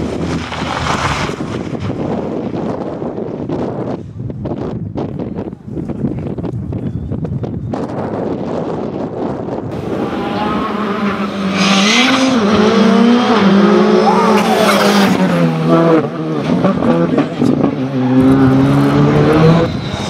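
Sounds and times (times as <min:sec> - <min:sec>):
rally car engine passing at speed: 0:09.7 - 0:20.0.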